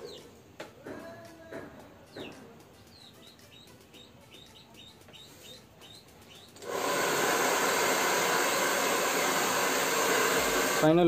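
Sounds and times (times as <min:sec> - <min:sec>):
small bird chirping: 0:00.0 - 0:00.4, 0:02.0 - 0:06.7
hair dryer blowing: 0:06.6 - 0:11.0.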